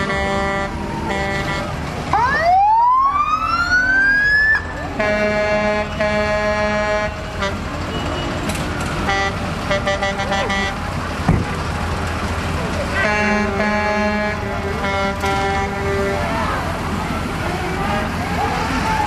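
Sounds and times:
horn blasts: 0.0s - 1.8s, 4.9s - 8.4s, 9.0s - 10.8s, 12.9s - 16.8s.

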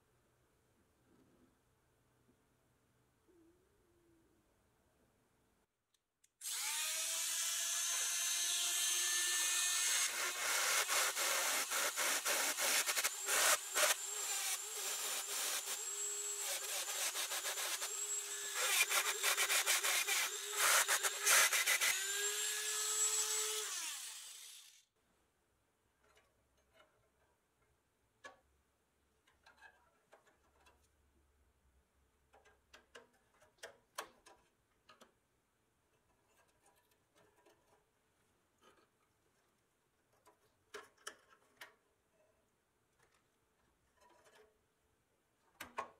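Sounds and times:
rotary tool grinding metal: 6.4s - 24.8s.

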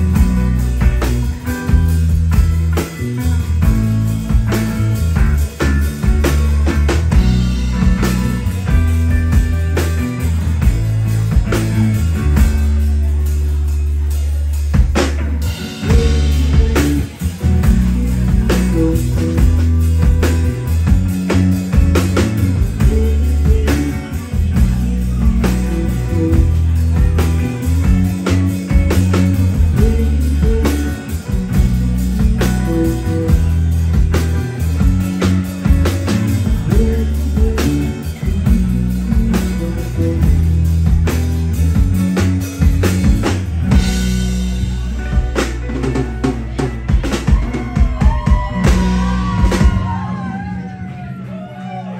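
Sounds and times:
person singing: 0.0s - 41.2s
drum kit beat: 0.0s - 50.7s
electric bass: 0.0s - 51.9s
electric guitar: 0.0s - 51.9s.

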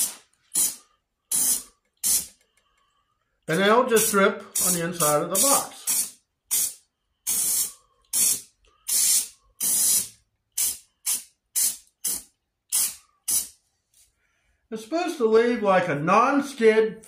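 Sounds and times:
aerosol can hissing: 0.0s - 2.4s, 4.0s - 13.6s.

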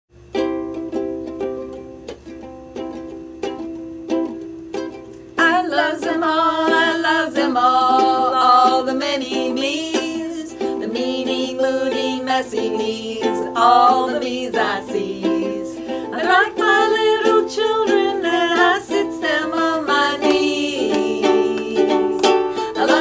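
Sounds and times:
ukulele strumming chords: 0.2s - 23.0s
two women singing together: 5.4s - 23.0s.

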